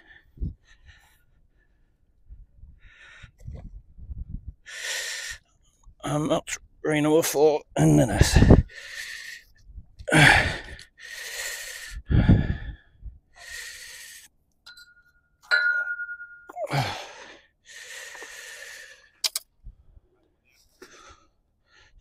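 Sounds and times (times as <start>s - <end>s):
man breathing hard and gasping: 2.7s - 3.6s, 4.6s - 5.5s, 8.1s - 14.4s, 16.5s - 19.2s, 20.8s - 22.0s
sharp click: 19.2s - 19.5s.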